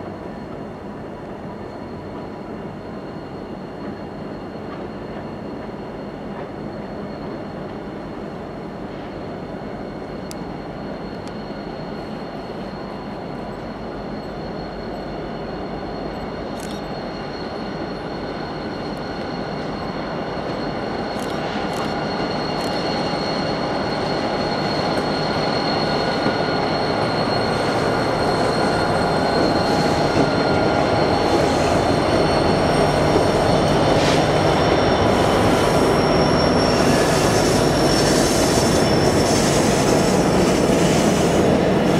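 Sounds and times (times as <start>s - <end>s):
diesel locomotives rumbling: 0.0s - 41.9s
high-pitched wheel squeal: 9.0s - 41.9s.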